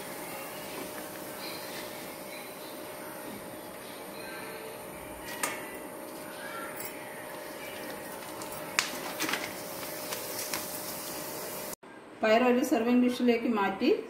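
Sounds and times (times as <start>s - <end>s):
food sizzling in hot oil: 9.6s - 11.8s.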